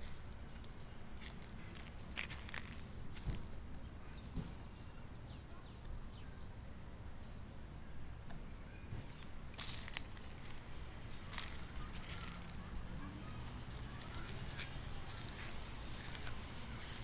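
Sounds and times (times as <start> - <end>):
crackling rustle: 0.0 - 3.8, 9.0 - 17.0
faint bird chirps: 3.8 - 17.0.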